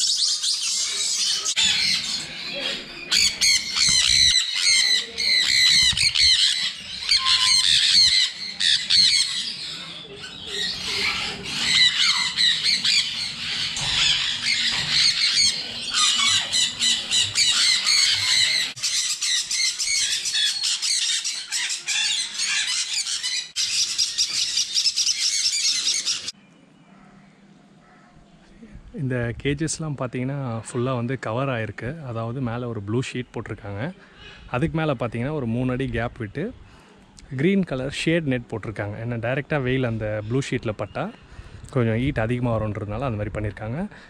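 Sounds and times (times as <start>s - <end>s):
parrots squawking: 0.0s - 26.4s.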